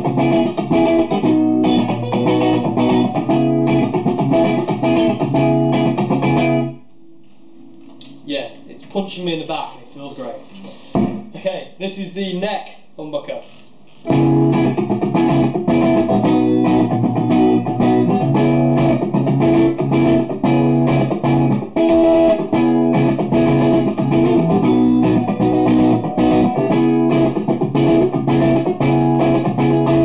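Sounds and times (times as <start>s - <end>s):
electric guitar through amplifier: 0.0s - 8.7s, 14.0s - 30.0s.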